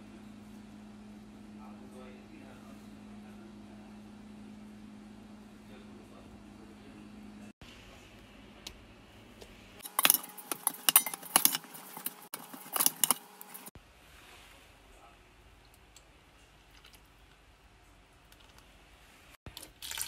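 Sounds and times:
metal spoon scraping metal pot: 0:09.8 - 0:13.7.

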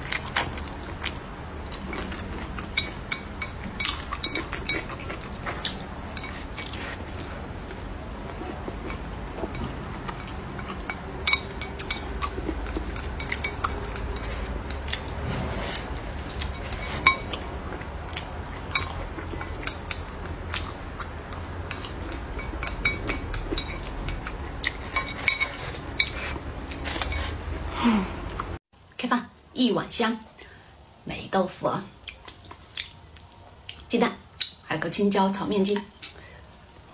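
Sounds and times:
chopsticks clinking on ceramic bowl: 0:01.7 - 0:07.3, 0:08.3 - 0:15.1, 0:18.1 - 0:20.7, 0:21.6 - 0:27.4.

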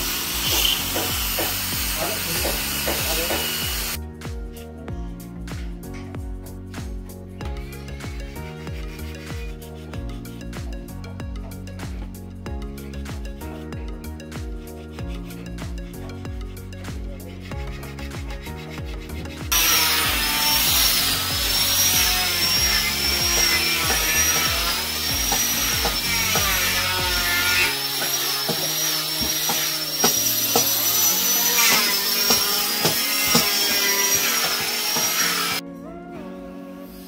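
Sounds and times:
power tool cutting wood: 0:00.0 - 0:04.0, 0:17.4 - 0:35.6
background music: 0:00.0 - 0:37.0.

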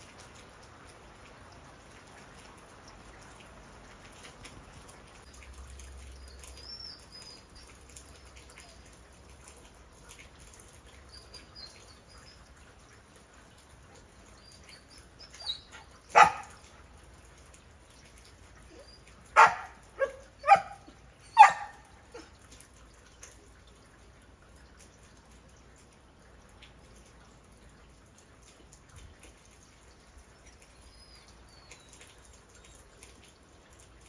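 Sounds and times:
rain pattering: 0:00.0 - 0:34.0
dog barking: 0:16.1 - 0:16.6, 0:19.4 - 0:22.3.

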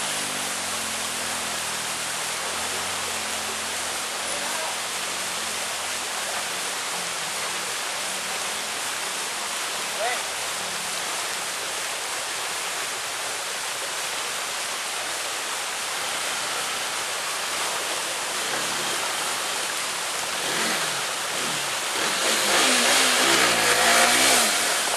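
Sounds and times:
motorcycle engine revving: 0:00.0 - 0:06.0, 0:15.8 - 0:24.9
stream rushing over rocks: 0:00.0 - 0:24.9.

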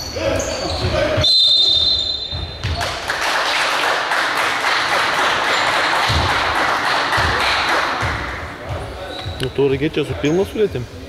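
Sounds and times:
crowd noise: 0:00.0 - 0:11.0
referee's whistle blast: 0:00.5 - 0:02.6.

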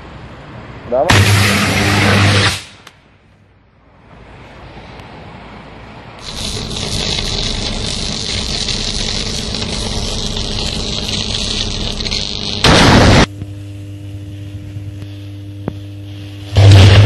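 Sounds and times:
electrical arc rushing: 0:01.1 - 0:02.8, 0:06.2 - 0:17.0.

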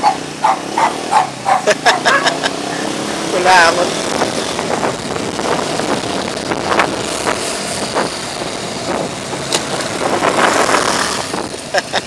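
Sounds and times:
road traffic noise: 0:00.0 - 0:12.0
wind buffeting microphone: 0:03.8 - 0:11.8.

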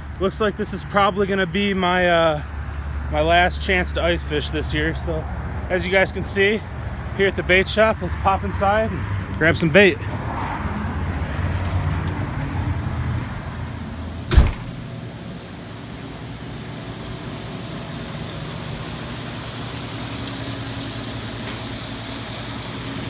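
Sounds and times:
water bubbling from aerator pumps: 0:13.5 - 0:23.0
door knocking shut: 0:14.3 - 0:14.8.

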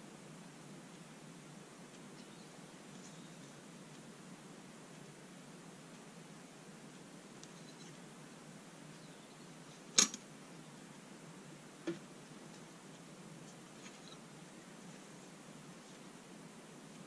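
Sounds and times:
faint ticks: 0:00.4 - 0:10.3
metallic clack of steel rule: 0:10.0 - 0:10.2.

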